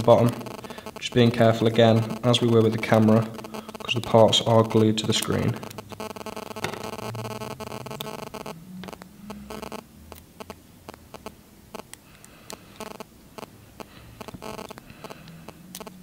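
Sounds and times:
fingernails clicking on phone parts: 14.2 - 16.0.

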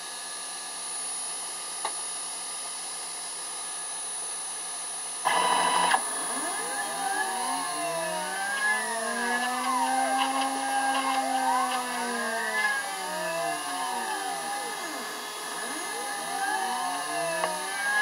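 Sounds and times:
motor whines rising and falling: 5.3 - 18.0
short motor buzz: 5.3 - 18.0
stepper motors whirring hum: 5.3 - 18.0.

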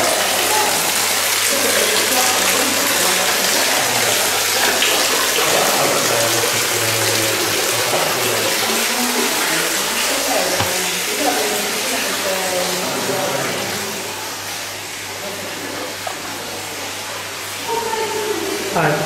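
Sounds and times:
water pouring into stone basin: 0.0 - 14.6.

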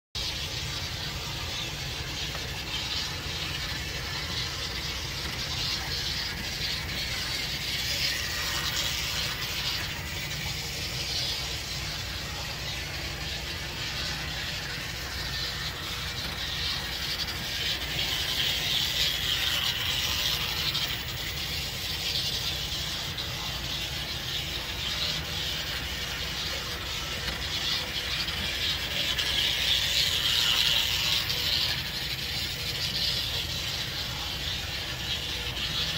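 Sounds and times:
toy train motor whirring: 0.2 - 35.9.

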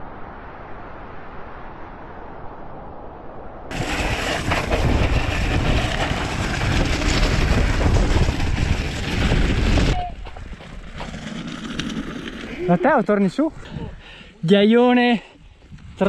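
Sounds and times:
wind on microphone: 2.0 - 10.6, 15.5 - 16.0
stones crunching under bike tyres: 3.7 - 13.1.

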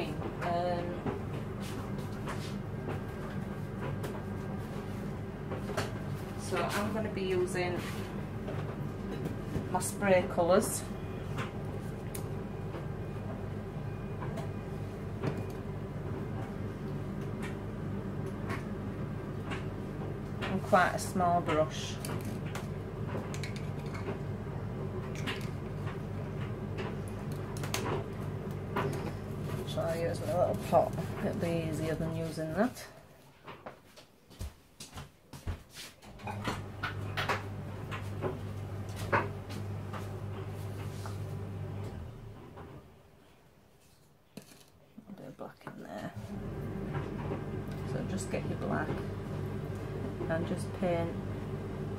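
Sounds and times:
steady low hum: 0.0 - 33.0, 46.1 - 51.9.

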